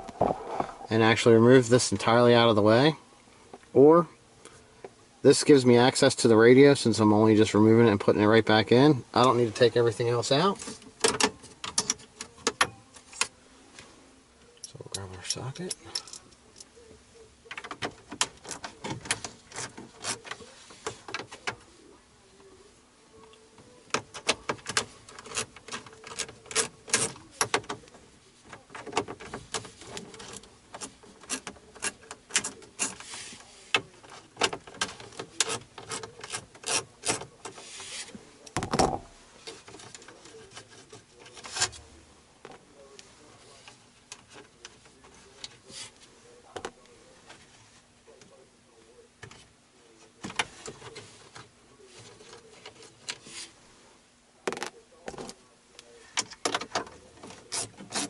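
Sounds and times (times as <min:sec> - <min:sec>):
dull thump: 0:00.0 - 0:00.9.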